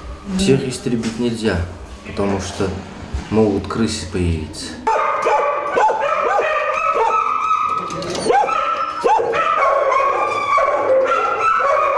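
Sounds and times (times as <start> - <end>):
dogs barking: 4.8 - 11.9.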